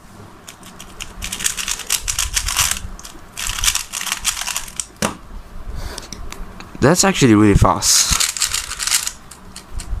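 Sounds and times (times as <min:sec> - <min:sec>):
speed cube turns clattering: 0:00.4 - 0:04.9, 0:08.1 - 0:09.9.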